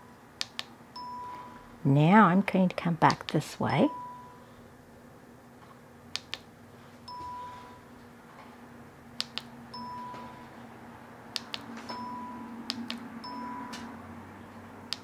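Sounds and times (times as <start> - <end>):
low steady hum: 0.0 - 15.0
button clicks: 12.7 - 13.0.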